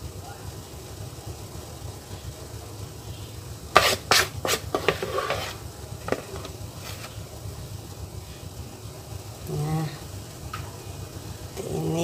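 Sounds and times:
spatula knocking on bowl: 3.8 - 5.5
spatula scraping bowl: 3.8 - 7.1.

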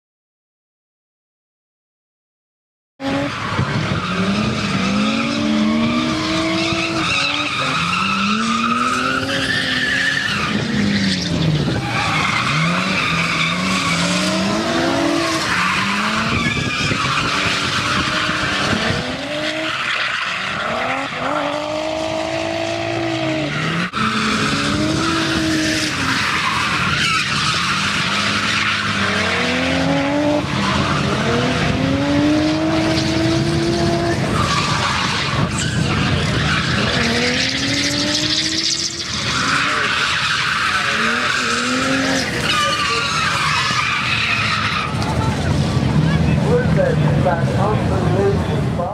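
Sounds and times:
car engine revving hard: 3.0 - 48.6
tyres squealing: 4.0 - 21.5, 34.0 - 45.4.

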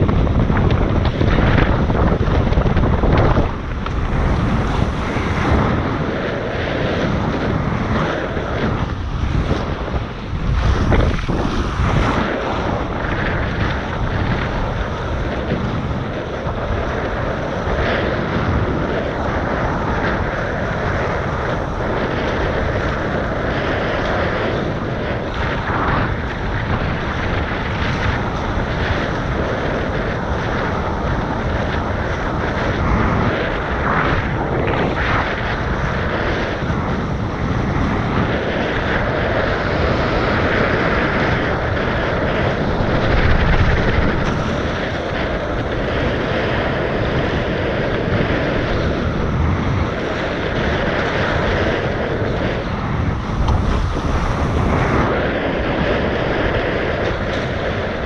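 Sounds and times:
water rushing past hulls: 0.0 - 16.1, 41.0 - 55.2
wind buffeting microphone: 0.0 - 58.0.

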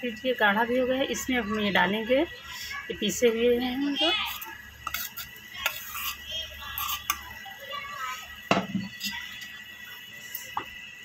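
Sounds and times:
knock on pan: 8.5 - 8.9.

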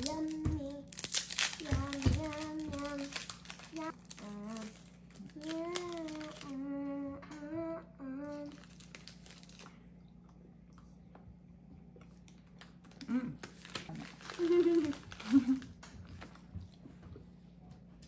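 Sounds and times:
snack wrapper crinkling: 0.0 - 6.6, 8.4 - 9.9, 12.2 - 15.9
person humming: 3.8 - 8.6, 13.0 - 15.6.

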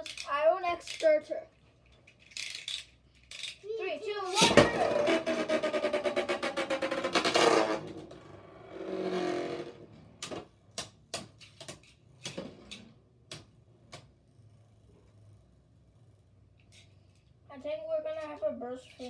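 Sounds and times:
spinning top rattling on plastic: 0.0 - 8.1.

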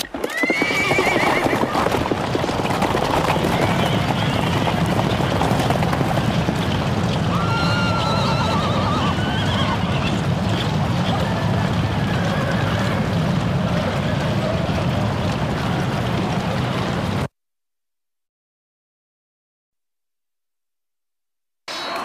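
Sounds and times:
horse whinnying: 0.0 - 5.9, 7.2 - 10.2
horses galloping: 0.0 - 17.3.

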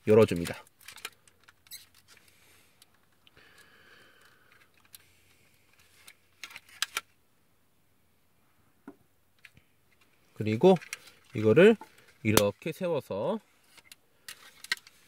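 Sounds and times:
plastic toy parts clicking: 0.2 - 2.1, 6.0 - 7.1, 10.7 - 12.5, 13.7 - 15.0.

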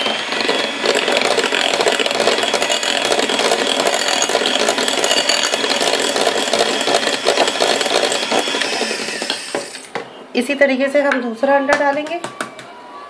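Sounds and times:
electric hand mixer whining: 0.0 - 10.0
beaters rattling in glass bowl: 1.0 - 9.4.

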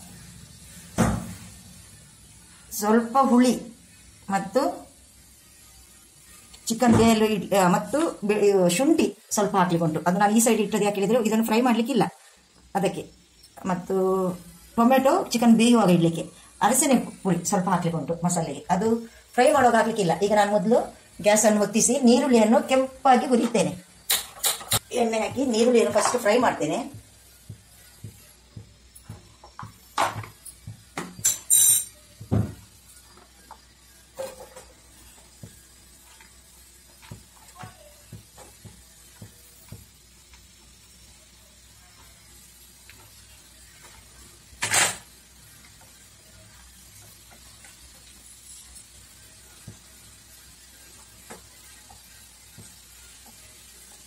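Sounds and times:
onions frying in oil: 0.0 - 54.0
pan and utensils clinking: 23.4 - 24.8, 29.0 - 32.6, 34.1 - 34.8.

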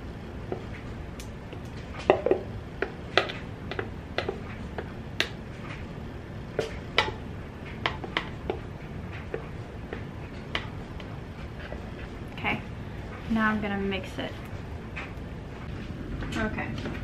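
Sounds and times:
low steady hum: 0.0 - 17.0
stir stick tapping plastic cup: 1.2 - 5.4.

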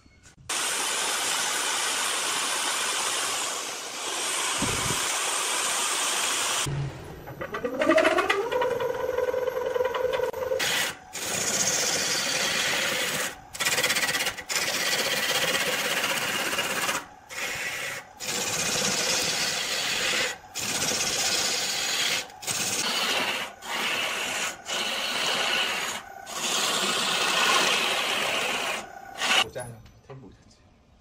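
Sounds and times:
gouge cutting wood on lathe: 7.6 - 29.4.

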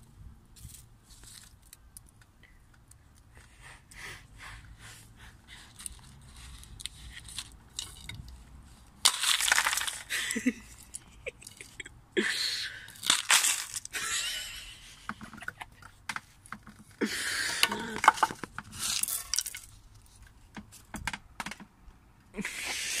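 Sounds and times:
crunching and crinkling: 0.0 - 3.9, 5.4 - 11.9, 12.8 - 14.1, 15.0 - 21.8
sharp clicks and knocks: 20.2 - 22.0.

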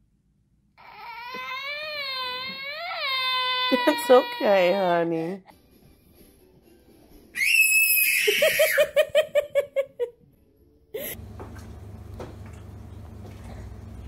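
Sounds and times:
child squealing: 0.8 - 4.6, 7.4 - 8.9
child giggling: 8.2 - 10.1.

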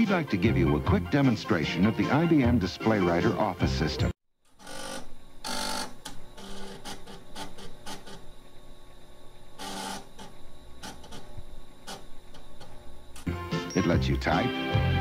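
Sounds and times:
diskette drive clicks and rasps: 4.5 - 13.3.

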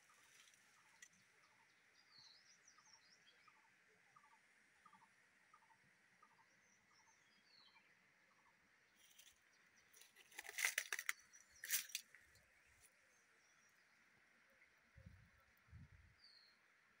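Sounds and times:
faint bird chirps: 0.0 - 10.0
hand scraping bark: 10.0 - 12.1
faint insect hum: 11.1 - 17.0.

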